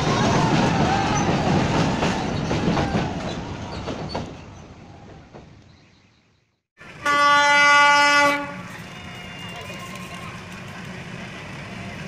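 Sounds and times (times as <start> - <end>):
train crossing a steel bridge: 0.0 - 6.2, 6.8 - 12.0
locomotive horn blast: 6.8 - 10.0.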